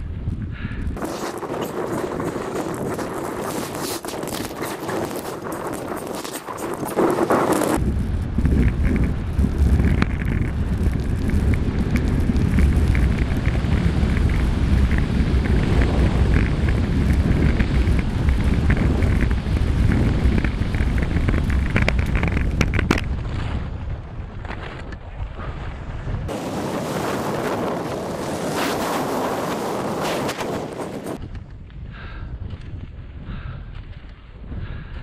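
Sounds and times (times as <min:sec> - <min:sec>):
wind buffeting microphone: 0:00.0 - 0:35.0
skis scraping over hard snow: 0:01.0 - 0:07.8, 0:08.4 - 0:23.6, 0:26.3 - 0:31.2.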